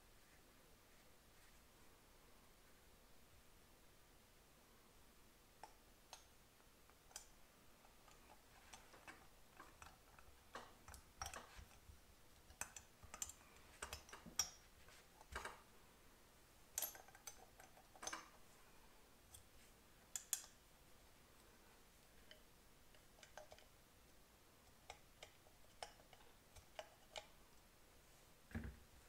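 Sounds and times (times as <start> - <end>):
light metal clicks and taps: 5.6 - 15.6, 16.7 - 18.4, 19.3 - 20.6, 22.2 - 23.7, 24.6 - 27.4.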